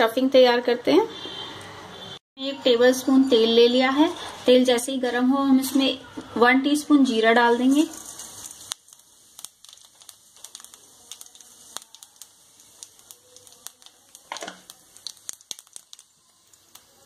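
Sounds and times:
faint oil sizzle: 2.9 - 17.0
seeds popping in hot oil: 6.9 - 17.0.

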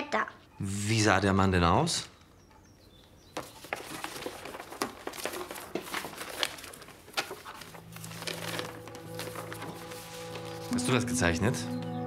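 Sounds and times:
low steady music tones: 7.6 - 12.0.

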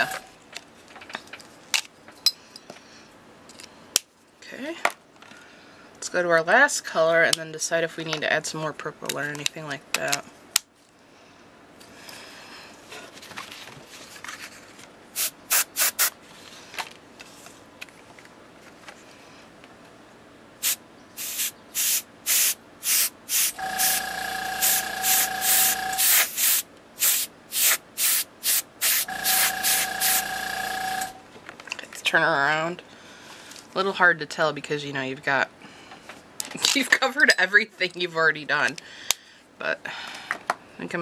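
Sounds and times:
air compressor humming: 0.0 - 0.3, 15.2 - 16.1, 20.6 - 31.3
airbrush air hiss bursts: 15.2 - 16.1, 20.6 - 31.1.

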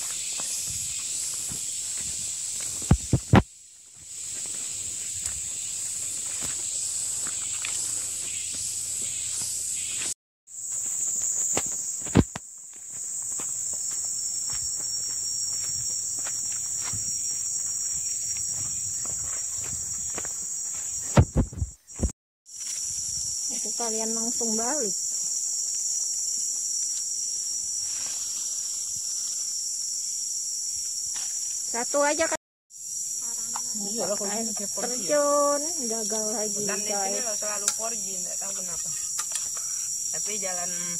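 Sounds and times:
footsteps crunching on dirt: 0.0 - 23.0
insects chorus: 0.0 - 40.9
sharp thump: 2.8 - 3.5, 21.1 - 22.1.

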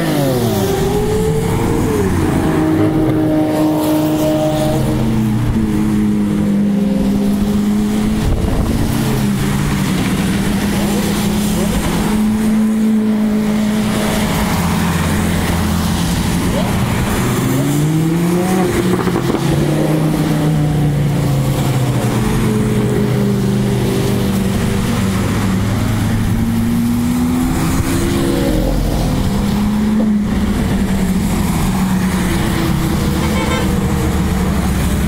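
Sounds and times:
sports cars driving past: 0.0 - 35.0.

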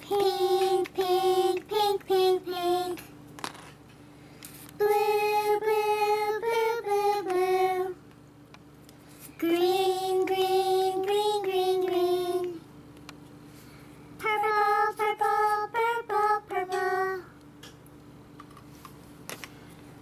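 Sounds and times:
high child-like singing voice: 9.4 - 12.6.

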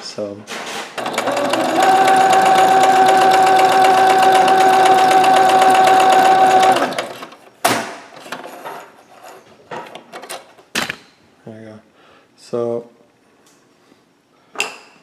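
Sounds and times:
sewing machine stitching: 0.8 - 7.4.

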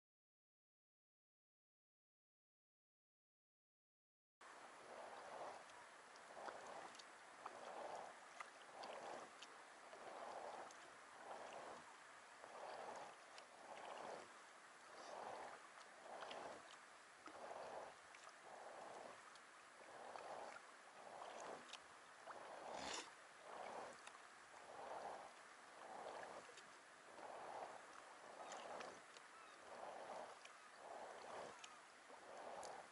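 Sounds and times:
paddle swishing through water: 4.6 - 32.9
water drips and clicks: 5.6 - 10.8.

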